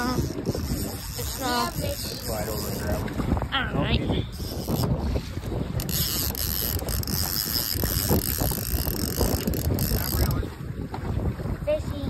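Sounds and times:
fishing reel ratcheting: 0:00.0 - 0:03.1, 0:04.3 - 0:05.2, 0:05.8 - 0:10.4.

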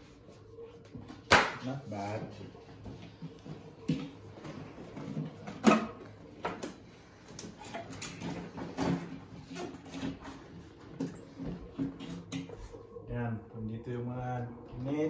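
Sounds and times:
cardboard rustling and scraping in glass tank: 0:01.9 - 0:12.9.

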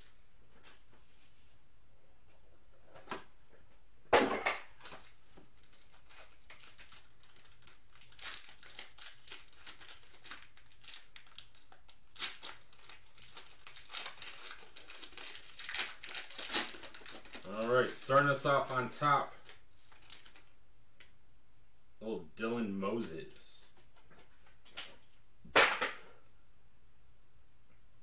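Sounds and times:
plastic wrapping crinkling: 0:04.7 - 0:20.6.

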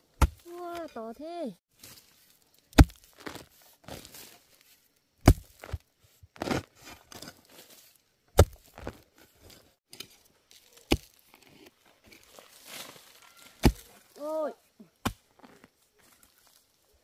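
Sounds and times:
loose earth crunching and scraping: 0:00.0 - 0:17.0
hoe chopping into soil: 0:00.1 - 0:00.8, 0:02.7 - 0:04.3, 0:05.2 - 0:05.8, 0:06.4 - 0:07.4, 0:08.4 - 0:10.2, 0:10.8 - 0:14.0, 0:15.0 - 0:15.6.

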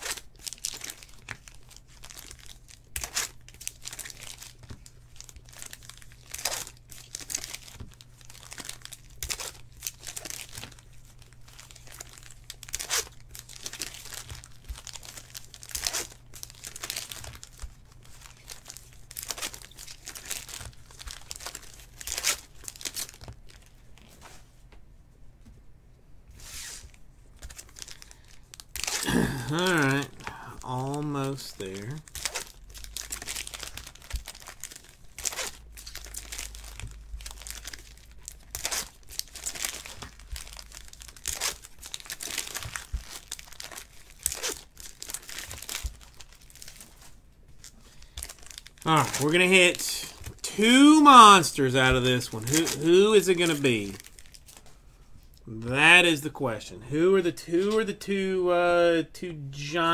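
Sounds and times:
wrappers tearing and crinkling: 0:00.0 - 0:24.3, 0:26.4 - 0:55.4
faint low hum: 0:00.0 - 0:44.2.

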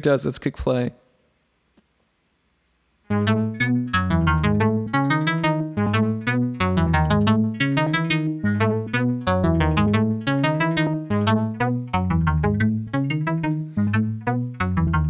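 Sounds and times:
synthesizer playing short notes: 0:03.1 - 0:15.0.

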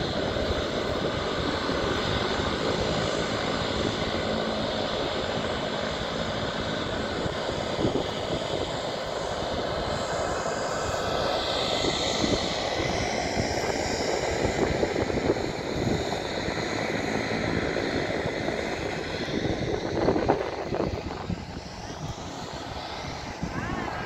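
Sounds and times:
aircraft engine roaring: 0:00.0 - 0:24.0.

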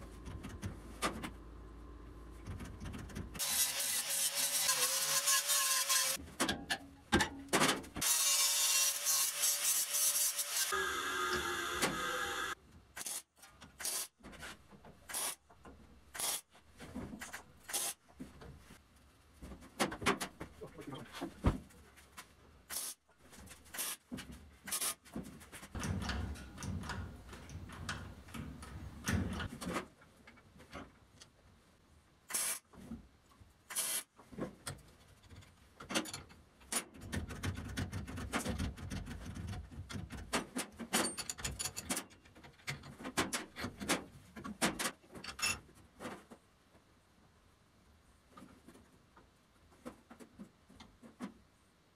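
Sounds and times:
metal parts and tools clicking: 0:40.9 - 0:43.9.

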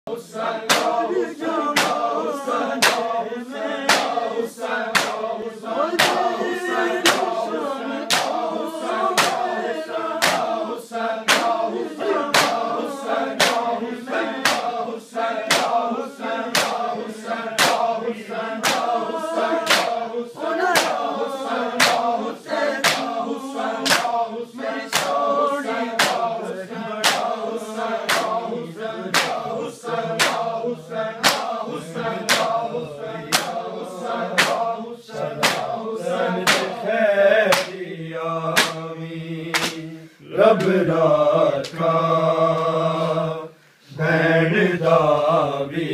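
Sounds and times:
men chanting together: 0:00.1 - 0:45.9
hands slapping bare chests: 0:00.7 - 0:01.1, 0:01.7 - 0:02.2, 0:02.8 - 0:03.2, 0:03.9 - 0:04.3, 0:04.9 - 0:05.3, 0:06.0 - 0:06.3, 0:07.0 - 0:07.4, 0:08.0 - 0:09.6, 0:10.2 - 0:10.6, 0:11.2 - 0:12.8, 0:13.4 - 0:13.7, 0:14.3 - 0:14.8, 0:15.5 - 0:15.9, 0:16.5 - 0:18.0, 0:18.6 - 0:20.1, 0:20.7 - 0:22.1, 0:22.8 - 0:23.2, 0:23.8 - 0:24.2, 0:24.8 - 0:25.3, 0:25.9 - 0:26.4, 0:27.0 - 0:27.4, 0:28.0 - 0:28.4, 0:29.1 - 0:29.5, 0:30.2 - 0:30.6, 0:31.2 - 0:31.6, 0:32.2 - 0:32.6, 0:33.3 - 0:33.7, 0:34.3 - 0:35.8, 0:36.4 - 0:36.8, 0:37.5 - 0:37.8, 0:38.6 - 0:38.8, 0:39.5 - 0:39.8.

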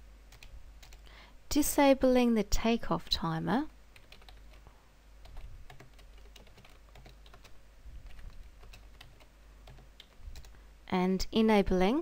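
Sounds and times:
keyboard typing: 0:00.3 - 0:01.1, 0:04.0 - 0:04.6, 0:05.2 - 0:10.6.

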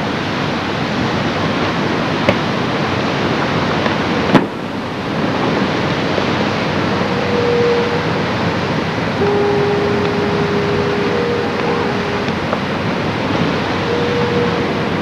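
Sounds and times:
wind and surf: 0:00.0 - 0:15.0
long horn-like notes: 0:06.4 - 0:15.0.

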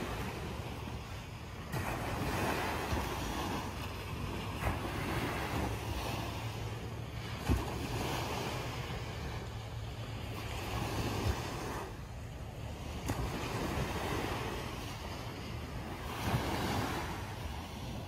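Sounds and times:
waves breaking on a beach: 0:00.0 - 0:18.0
wind buffeting the microphone: 0:00.0 - 0:18.0.

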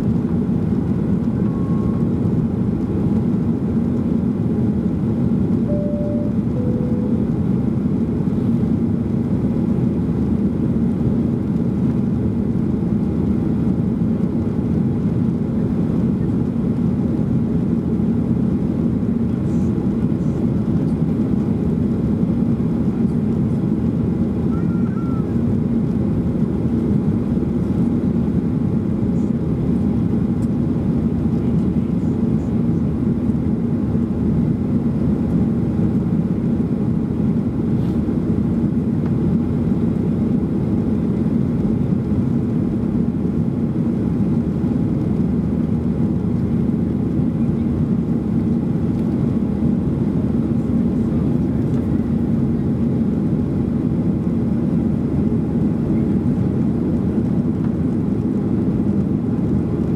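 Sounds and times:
jet engines humming: 0:00.0 - 0:09.6
air rushing along fuselage: 0:05.4 - 0:09.1.

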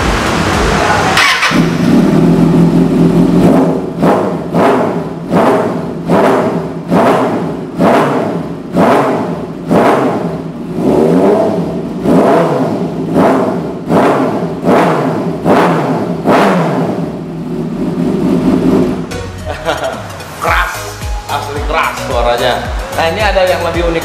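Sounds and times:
motorcycle engine revving: 0:00.0 - 0:19.1.

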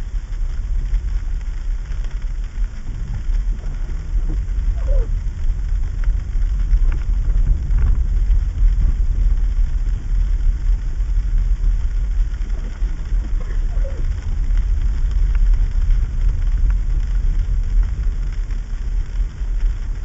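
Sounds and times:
car engine and tyres rumbling: 0:00.0 - 0:20.0.

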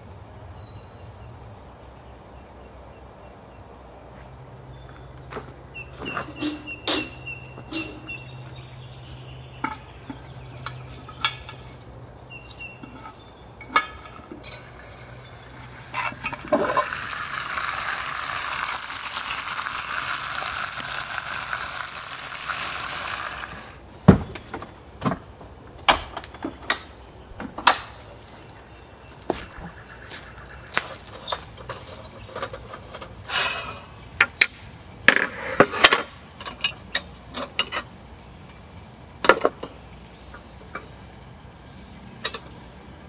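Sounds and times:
steady hiss: 0:05.8 - 0:24.9, 0:26.7 - 0:43.0
utensils and cookware clinking: 0:06.0 - 0:08.1, 0:08.9 - 0:11.9, 0:12.5 - 0:17.0.

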